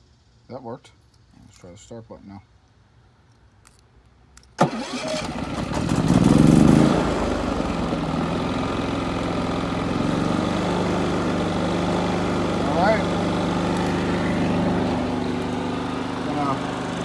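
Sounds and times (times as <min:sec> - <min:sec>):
generator engine running: 0:04.6 - 0:17.0.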